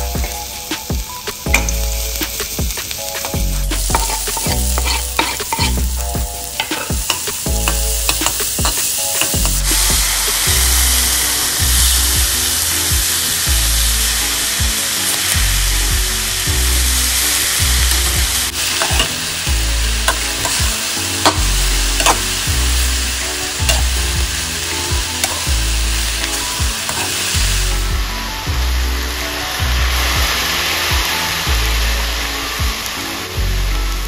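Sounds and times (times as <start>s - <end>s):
food sizzling in hot oil: 0.0s - 34.0s
spatula scraping pan: 3.8s - 6.0s, 20.0s - 22.4s.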